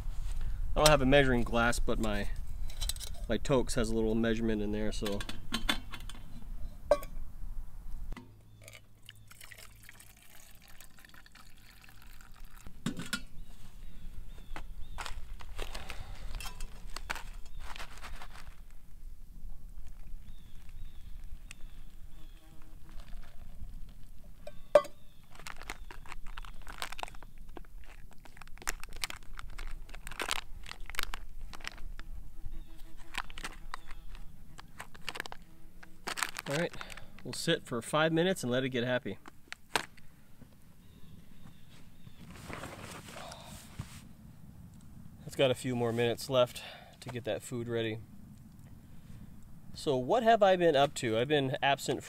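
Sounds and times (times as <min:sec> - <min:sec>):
metal mug clink: 0:06.9 - 0:07.2, 0:24.4 - 0:25.0
water trickling into a metal mug: 0:08.6 - 0:12.8
foil pouch crinkling: 0:14.9 - 0:19.0, 0:19.8 - 0:24.1, 0:25.1 - 0:37.4.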